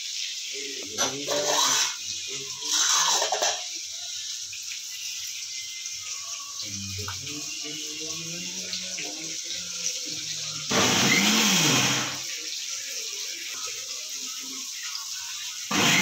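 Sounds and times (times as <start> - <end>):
mixer grinder motor whine: 10.7 - 12.2, 15.7 - 16.0.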